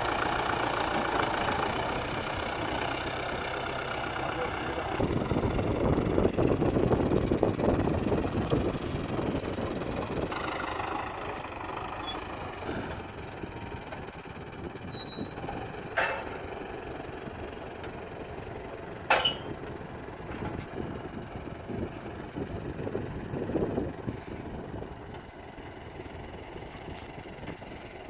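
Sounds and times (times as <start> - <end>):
tractor diesel engine: 0.0 - 28.0
sharp metal clanks: 16.0 - 16.4.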